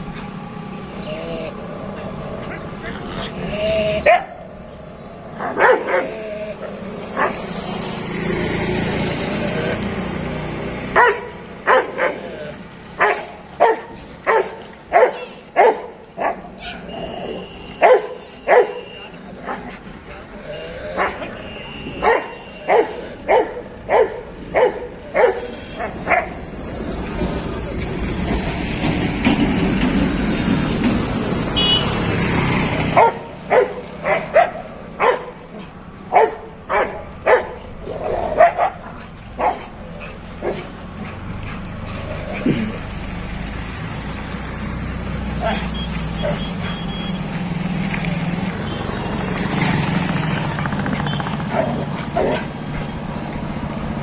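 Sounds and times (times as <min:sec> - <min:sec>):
dog barking aggressively: 0:04.0 - 0:04.4, 0:05.4 - 0:07.6, 0:10.9 - 0:12.4, 0:13.0 - 0:16.9, 0:17.8 - 0:19.8, 0:21.0 - 0:26.4, 0:32.9 - 0:42.6, 0:45.4 - 0:46.8, 0:50.2 - 0:52.9.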